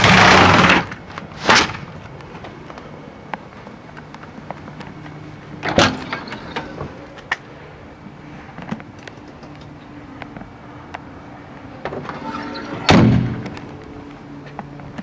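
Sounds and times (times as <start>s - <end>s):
light handling clicks and knocks: 8.5s - 11.1s.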